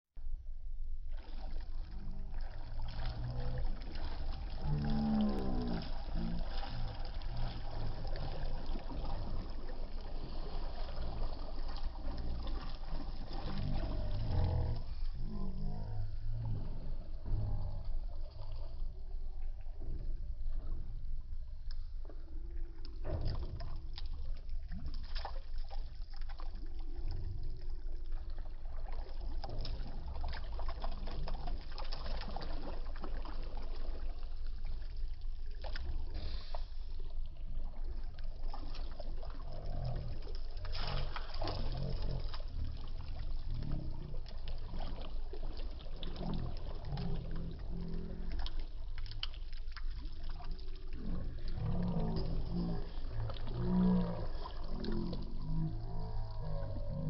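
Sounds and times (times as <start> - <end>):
steady low rumble: 0.1 - 24.9
shallow water splashing: 1.1 - 57.0.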